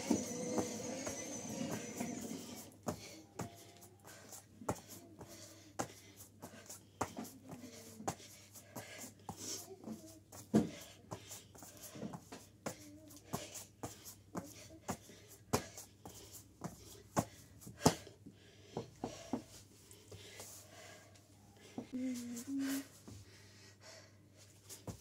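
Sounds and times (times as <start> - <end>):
scuffing on mat: 24.6 - 25.0.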